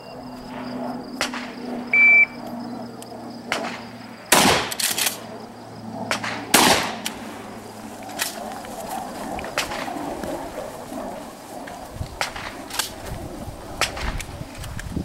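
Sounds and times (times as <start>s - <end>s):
shot timer beep: 2.0s - 2.4s
pistol shots: 3.5s - 5.3s, 6.1s - 7.3s.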